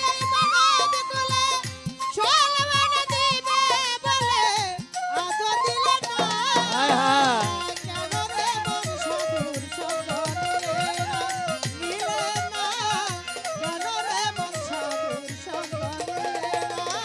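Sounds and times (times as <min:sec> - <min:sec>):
wavering folk melody instrument: 0:00.0 - 0:17.0.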